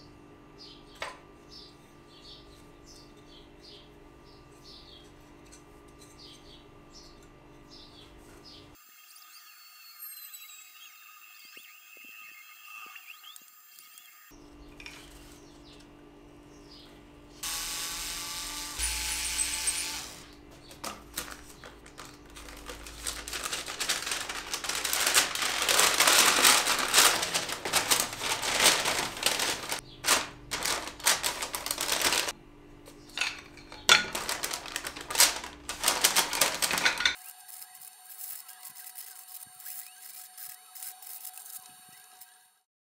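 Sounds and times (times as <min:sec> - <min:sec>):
small metal reeds clattering: 0:20.6 - 0:32.3, 0:33.0 - 0:37.2
paper bag rustling: 0:20.7 - 0:32.3, 0:33.2 - 0:37.2.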